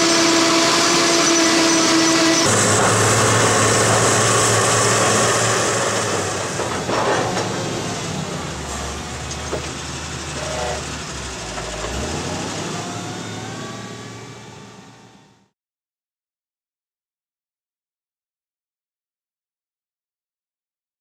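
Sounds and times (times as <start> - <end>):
truck diesel engine running: 0.0 - 15.5.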